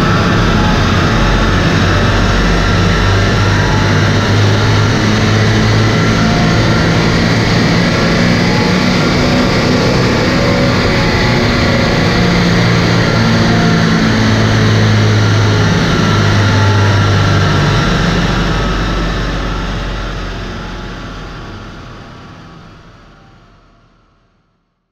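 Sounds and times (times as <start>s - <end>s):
diesel engine and tyres droning: 0.0s - 24.2s.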